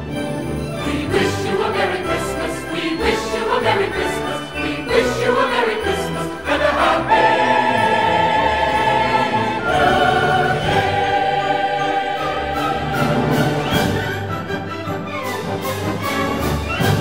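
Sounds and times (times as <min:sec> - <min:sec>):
voices singing long held notes: 0:00.8 - 0:13.9.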